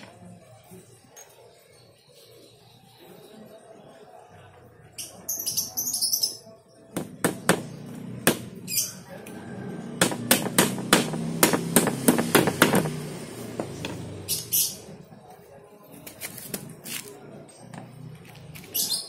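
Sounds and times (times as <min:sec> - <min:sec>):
hammer striking wood: 0:06.9 - 0:08.6, 0:10.0 - 0:14.0.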